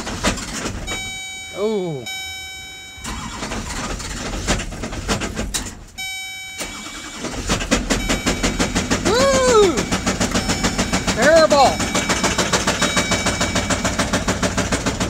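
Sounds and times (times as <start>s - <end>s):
engine running with rod knock: 0.0s - 1.1s, 3.6s - 5.8s, 7.4s - 15.0s
diesel engine cranking: 0.0s - 15.0s
dashboard chime: 0.9s - 3.4s, 6.0s - 7.1s, 7.9s - 14.1s.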